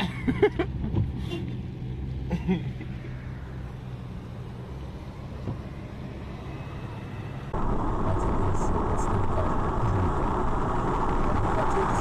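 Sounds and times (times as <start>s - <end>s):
car interior road rumble: 0.0s - 12.0s
hissy highway road noise: 0.0s - 12.0s.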